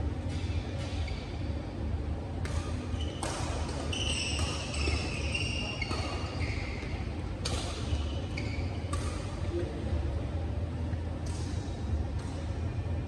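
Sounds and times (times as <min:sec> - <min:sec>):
racket hitting shuttlecock: 0:00.2 - 0:01.1, 0:02.4 - 0:08.0, 0:08.8 - 0:09.4, 0:11.2 - 0:12.5
shoes squeaking on court: 0:00.3 - 0:01.6, 0:02.4 - 0:09.4.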